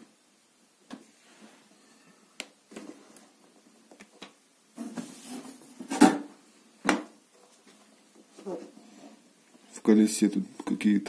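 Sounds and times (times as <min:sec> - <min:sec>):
cardboard rustling and scraping: 0:04.8 - 0:06.2.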